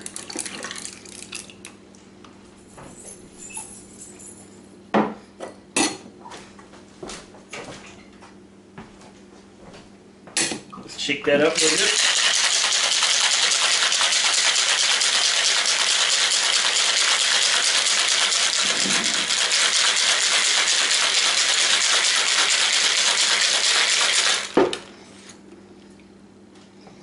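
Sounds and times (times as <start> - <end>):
ice rattling in cocktail shaker: 11.6 - 24.6.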